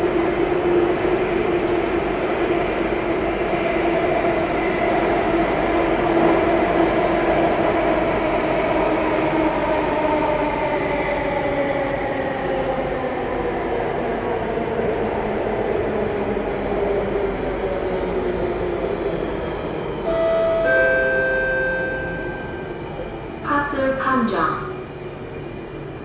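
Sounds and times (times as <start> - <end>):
train rumbling through tunnel: 0.0 - 26.0
train whine: 5.2 - 26.0.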